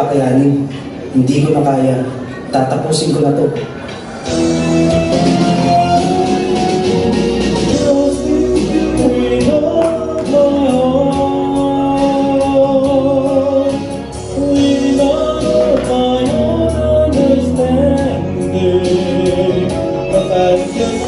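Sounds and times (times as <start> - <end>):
band playing steady beat: 4.2 - 21.0
person singing slow melody: 4.2 - 21.0.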